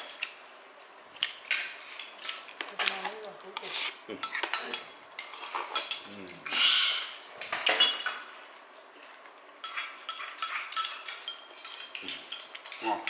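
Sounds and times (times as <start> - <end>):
utensils clinking against dishes: 1.4 - 8.4, 9.6 - 13.0.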